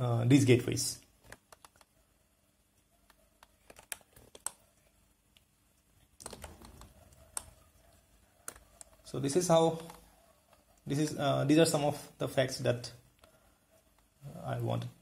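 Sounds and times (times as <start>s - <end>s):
keyboard and mouse clicks: 1.2s - 2.0s, 2.8s - 4.6s, 5.3s - 9.1s, 9.7s - 10.9s.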